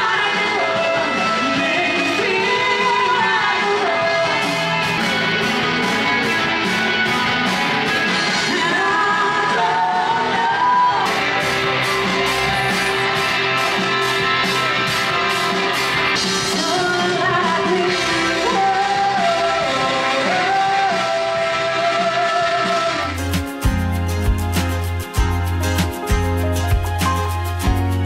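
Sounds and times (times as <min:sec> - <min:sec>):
person singing: 0:00.0 - 0:06.0, 0:08.1 - 0:23.7
drum kit beat: 0:00.0 - 0:28.0.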